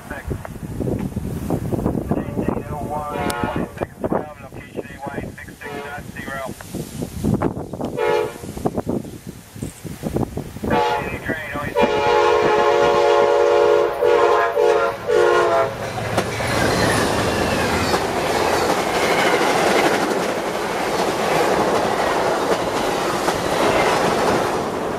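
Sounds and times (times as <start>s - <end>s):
train horn: 3.1s - 3.9s, 5.6s - 6.1s, 8.0s - 8.5s, 10.7s - 15.8s
train cars rushing past: 10.1s - 24.9s
wheels clickety-clack on rails: 15.6s - 24.9s.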